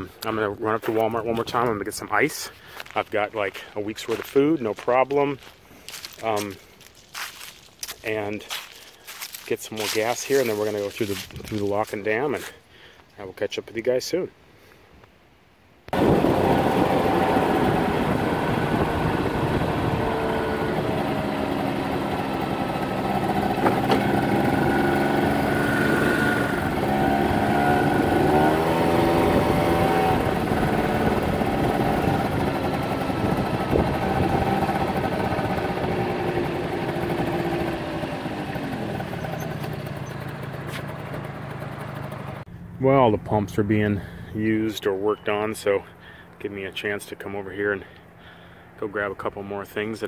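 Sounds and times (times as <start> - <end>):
wind noise: 11.2 - 11.7, 15.9 - 21.0, 33.2 - 34.6
scooter engine running: 16.0 - 42.7.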